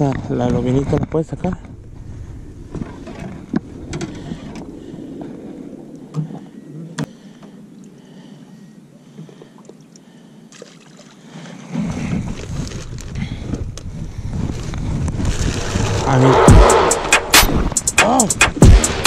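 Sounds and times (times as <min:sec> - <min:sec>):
wind rumble on microphone: 0:00.0 - 0:07.1, 0:11.7 - 0:18.6
hiss of wind and water: 0:01.8 - 0:18.5.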